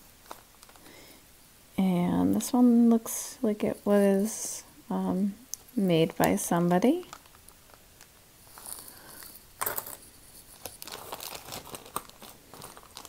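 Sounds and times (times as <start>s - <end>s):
plastic bag crinkling: 0.1s - 1.0s, 6.9s - 13.0s.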